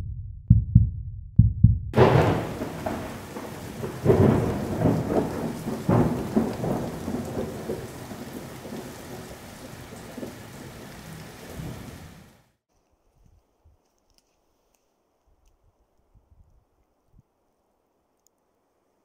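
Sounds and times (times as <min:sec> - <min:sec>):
thunder crack and rumble: 0:01.9 - 0:12.4
rain: 0:02.0 - 0:12.6.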